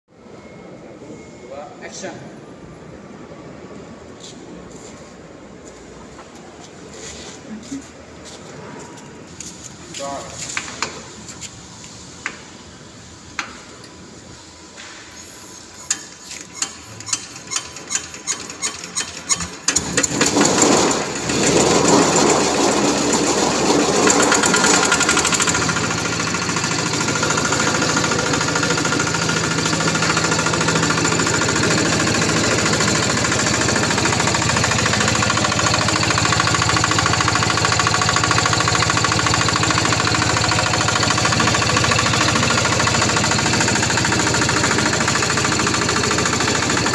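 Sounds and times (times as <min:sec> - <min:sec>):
diesel engine cranking and running: 0:15.7 - 0:46.9.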